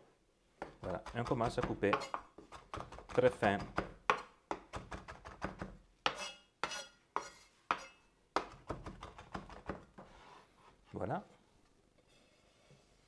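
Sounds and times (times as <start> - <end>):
knife chopping on wooden board: 0.6 - 6.8.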